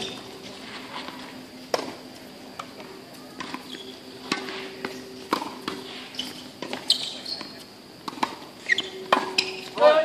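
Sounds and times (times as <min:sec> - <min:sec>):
tennis balls hit with racquets: 0:01.6 - 0:02.8, 0:03.4 - 0:10.0
tennis balls bouncing on hard court: 0:03.4 - 0:09.8.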